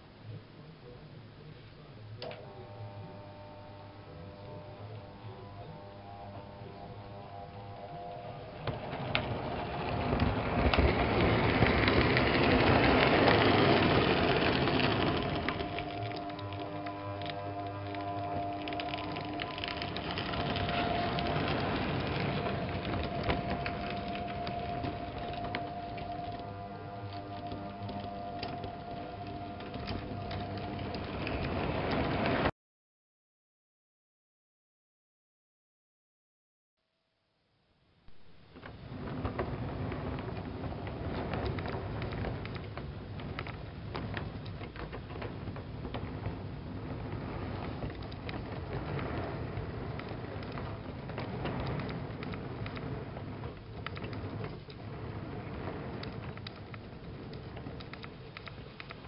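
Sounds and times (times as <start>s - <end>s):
model train rattling rumble: 2.6s - 32.5s, 38.2s - 59.0s
wheels clicking over rails: 3.4s - 32.5s, 38.1s - 59.0s.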